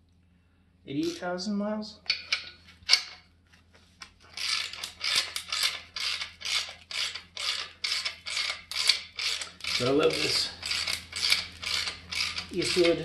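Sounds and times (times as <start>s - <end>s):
ratchet wrench strokes: 4.3s - 13.0s.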